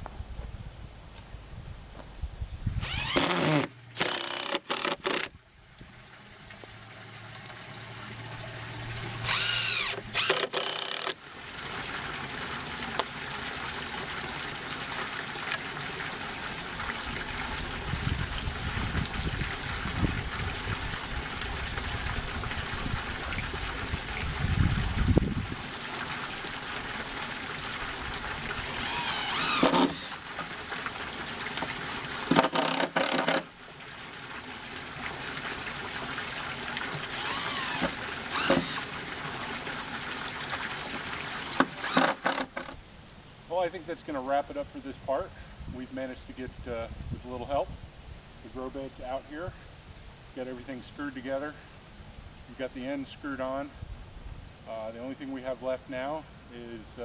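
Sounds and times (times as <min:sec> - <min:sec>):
cordless driver driving screws: 0:02.8 - 0:05.3, 0:09.2 - 0:11.2, 0:28.6 - 0:30.1, 0:32.3 - 0:33.4, 0:37.2 - 0:38.8, 0:41.6 - 0:42.8.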